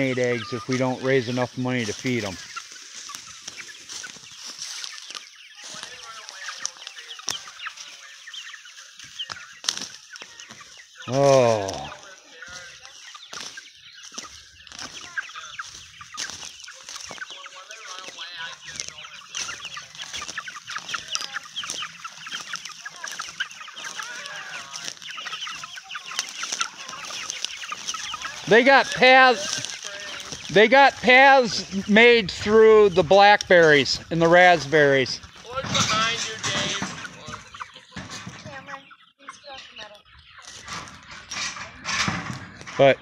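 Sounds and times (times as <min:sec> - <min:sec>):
dry leaves crunching: 0:00.0 - 0:32.1
chickens calling: 0:00.0 - 0:43.0.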